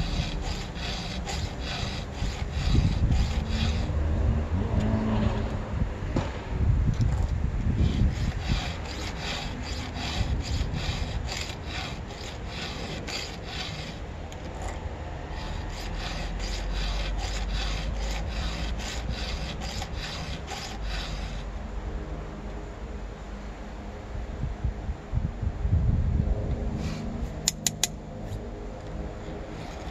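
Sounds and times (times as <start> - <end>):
file rasping across chain cutters: 0.0 - 4.0, 7.8 - 21.5, 29.2 - 29.9.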